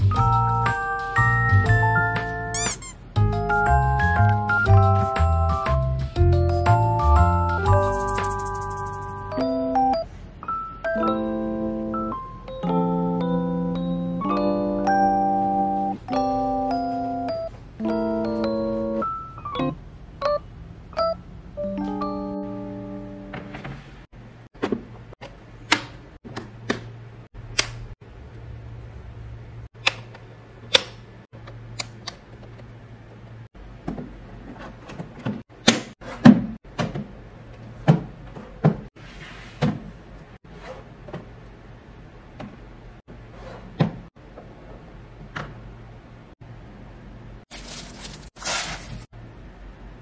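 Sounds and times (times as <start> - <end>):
plastic wrapping rustling: 47.5 - 49.1.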